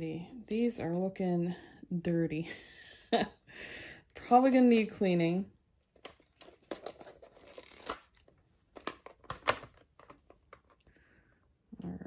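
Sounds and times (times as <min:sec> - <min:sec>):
plastic cases clacking: 0:06.0 - 0:10.8.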